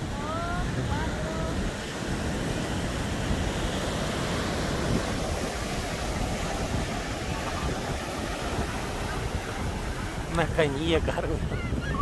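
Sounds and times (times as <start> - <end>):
ocean surf on sandy beach: 0.0 - 12.0
wind buffeting microphone: 0.0 - 12.0.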